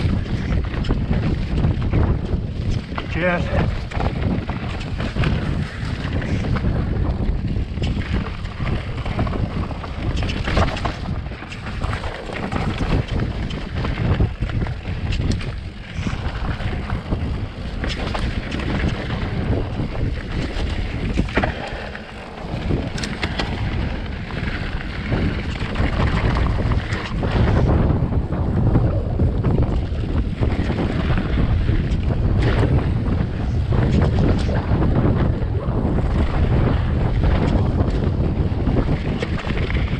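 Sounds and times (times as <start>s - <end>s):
tyres rumbling on dirt: 0.0s - 39.9s
wind buffeting microphone: 0.0s - 39.9s
bike knocking over stones: 7.8s - 27.8s.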